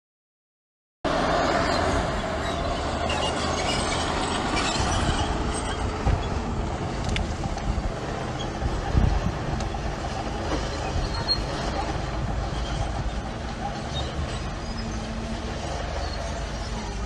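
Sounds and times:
diesel engine running: 1.1s - 17.0s
metal tracks clattering: 2.1s - 17.0s.

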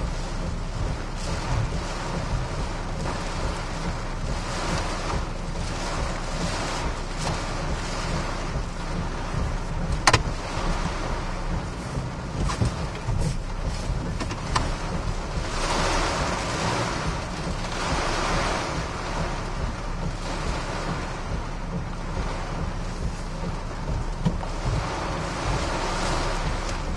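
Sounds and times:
rain hissing: 0.0s - 26.9s
wind buffeting a vehicle: 0.0s - 26.9s
sharp knocks: 9.4s - 10.4s.

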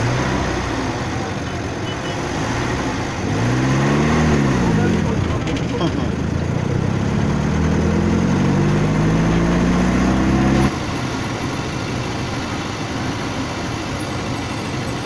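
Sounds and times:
road noise: 0.0s - 15.0s
vehicle engine running: 0.0s - 15.0s.

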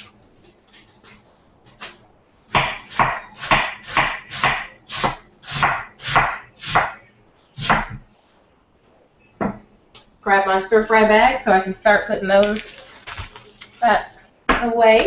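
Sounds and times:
knife chopping cabbage: 1.7s - 7.0s.

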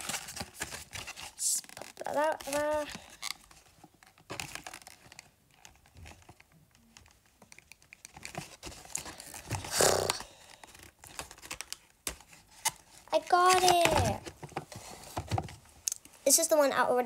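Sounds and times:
packaging crinkling and scraping: 0.0s - 15.7s
packaging tearing: 4.1s - 5.8s, 8.0s - 11.9s.

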